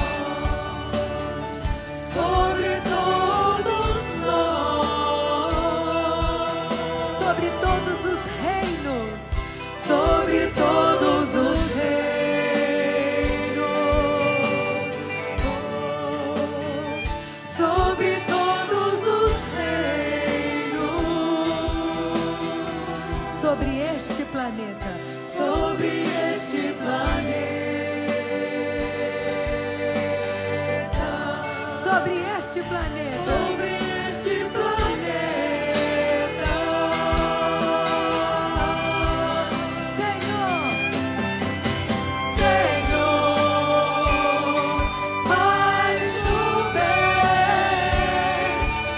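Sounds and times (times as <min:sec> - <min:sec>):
instrumental backing with bass thumps: 0:00.0 - 0:48.9
people singing a hymn: 0:00.0 - 0:48.9
woman singing into a microphone: 0:05.5 - 0:11.8, 0:23.1 - 0:26.5, 0:31.5 - 0:35.0.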